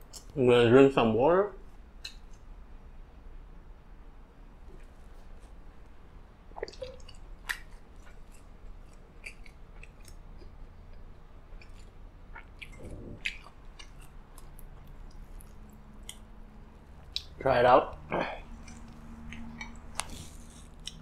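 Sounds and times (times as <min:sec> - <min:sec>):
mouth and chewing sounds: 0:06.5 - 0:17.4, 0:18.4 - 0:21.0.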